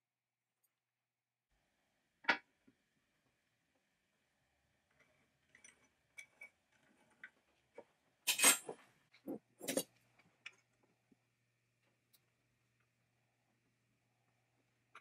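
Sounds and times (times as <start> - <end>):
metal tools clinking: 8.3 - 8.8
tools clattering: 8.3 - 8.8.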